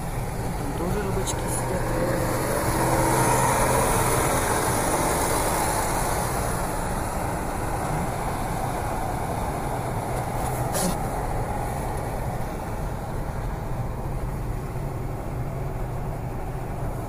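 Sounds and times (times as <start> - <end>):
car engine running steadily: 0.0 - 17.0
tyres on the road: 0.0 - 17.0.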